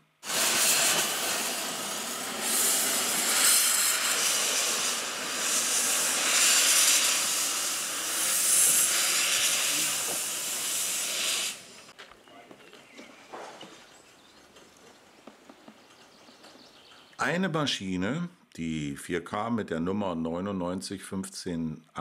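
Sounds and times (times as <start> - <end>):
steam locomotive hissing steam: 0.0 - 12.0.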